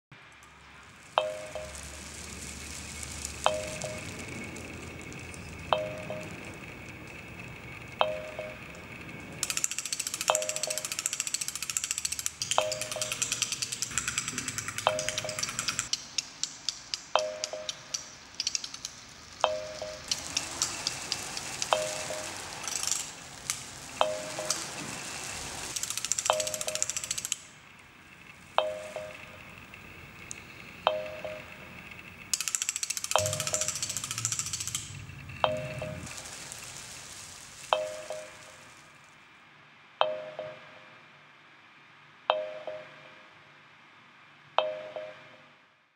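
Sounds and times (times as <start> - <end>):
crackling electronic clicks: 0.3 - 39.1
hiss: 35.8 - 39.0
chime-like ping: 42.3 - 43.2, 44.6 - 45.4.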